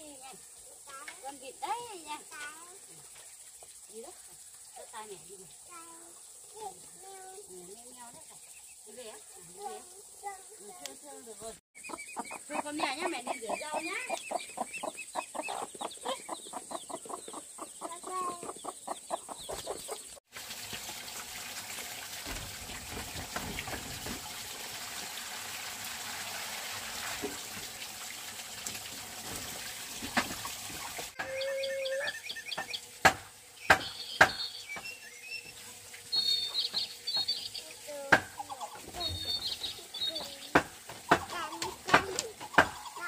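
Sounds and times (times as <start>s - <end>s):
running water: 0.0s - 15.0s, 20.2s - 43.0s
small birds chirping: 0.0s - 20.2s, 30.8s - 43.0s
chickens clucking: 11.8s - 20.2s, 38.3s - 43.0s
sharp knocks: 32.5s - 34.9s, 40.5s - 42.8s.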